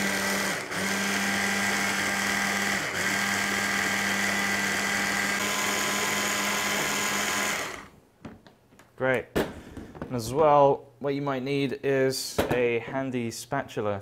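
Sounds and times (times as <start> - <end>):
hand blender whizzing: 0.0 - 7.9.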